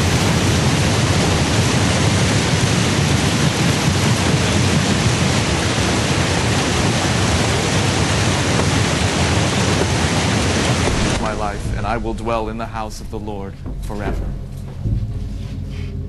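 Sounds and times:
loud steady rushing noise: 0.0 - 16.0.

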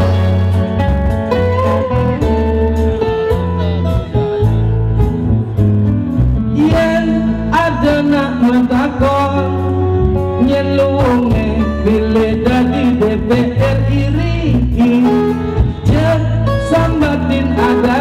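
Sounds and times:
band music with acoustic guitar: 0.0 - 18.0
man singing: 6.4 - 18.0.

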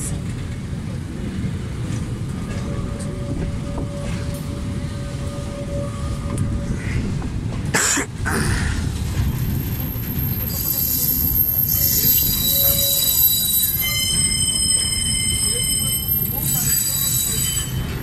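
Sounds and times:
train wheels rumbling on rails: 0.0 - 18.0
train wheels squealing: 2.4 - 7.0, 9.4 - 18.0.

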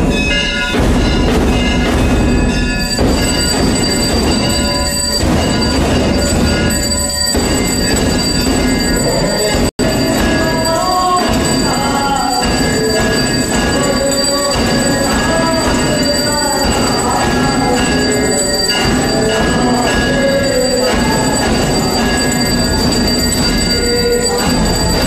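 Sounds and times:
hand bells ringing: 0.0 - 25.0
person singing a hymn: 9.0 - 23.0.

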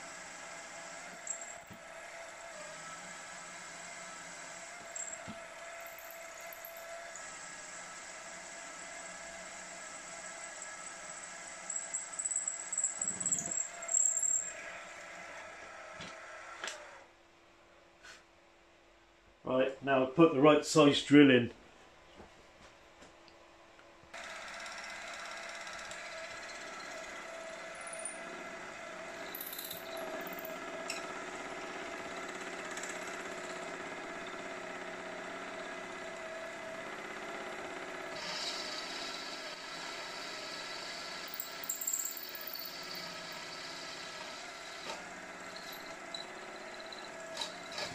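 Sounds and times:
drill boring through metal: 0.0 - 15.5, 24.2 - 47.9
milling machine drilling metal: 38.1 - 47.9.

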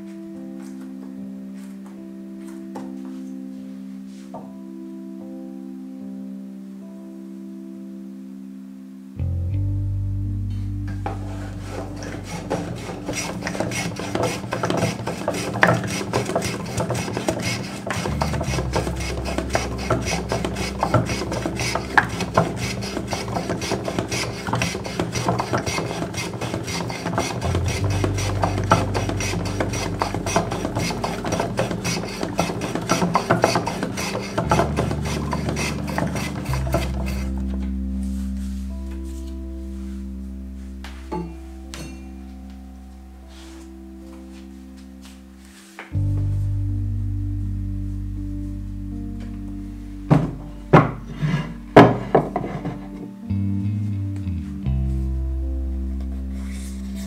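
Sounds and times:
soft background music: 0.0 - 57.0
blade scraping paper edges: 11.8 - 37.4.

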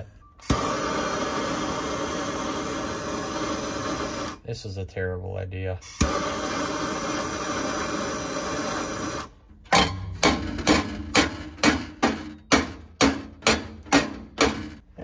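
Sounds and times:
gas torch hissing: 0.0 - 4.5, 5.8 - 9.5.

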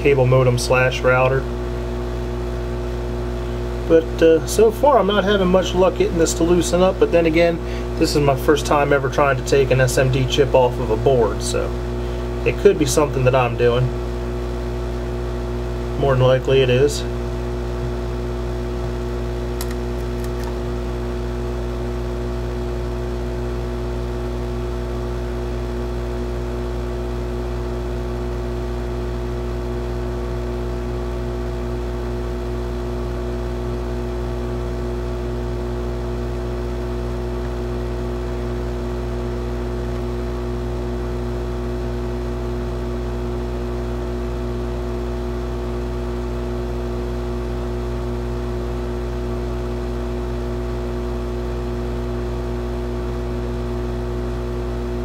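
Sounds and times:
hot air blower whirring: 0.0 - 22.9.

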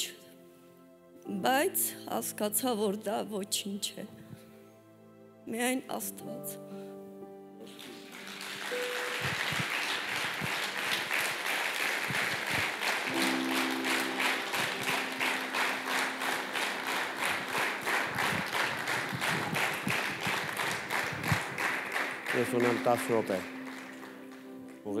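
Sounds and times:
soft keyboard chord: 0.0 - 25.0
congregation applauding: 7.6 - 25.0.

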